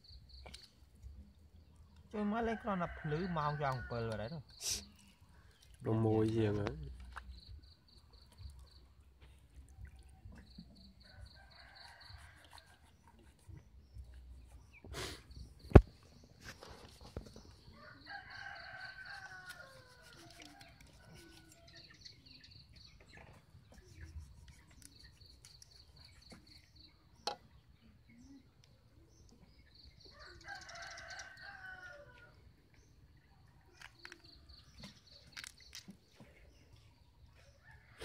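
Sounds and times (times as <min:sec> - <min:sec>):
small bird chirping: 0:19.3 - 0:31.4.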